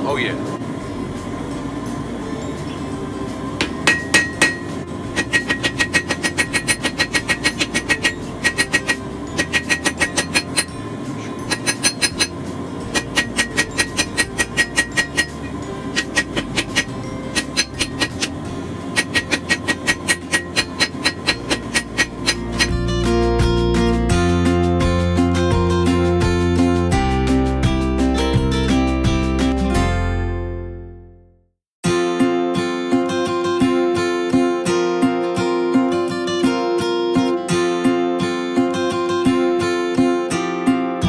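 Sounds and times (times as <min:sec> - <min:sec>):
gas forge burner roaring: 0:00.0 - 0:22.9
hammer striking hot steel on anvil: 0:03.6 - 0:22.8.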